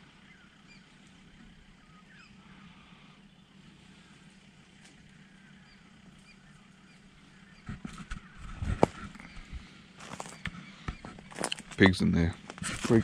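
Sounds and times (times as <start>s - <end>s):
faint bird chirps: 0.0s - 12.4s
low steady hum: 0.0s - 13.0s
knocks and rustling: 7.6s - 13.0s.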